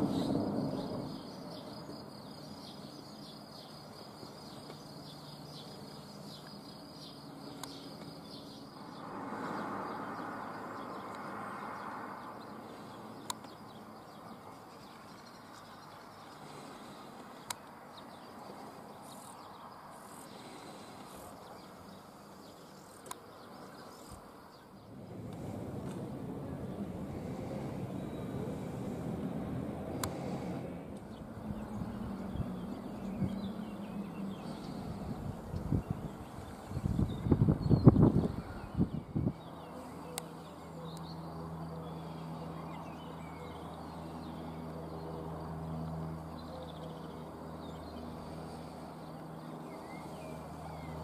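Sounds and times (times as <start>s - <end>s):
faint birds chirping: 0.0s - 51.0s
steady low hum: 0.0s - 51.0s
steady low hiss: 12.0s - 44.5s.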